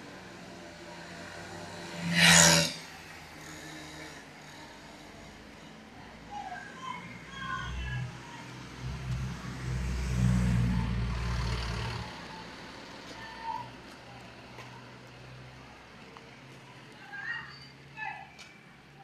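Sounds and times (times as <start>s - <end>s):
pickup truck driving past: 8.2s - 13.1s.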